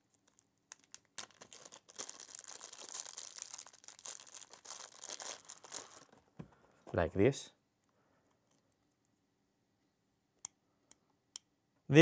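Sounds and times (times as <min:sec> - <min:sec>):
plastic bag crinkling: 0:00.0 - 0:06.4.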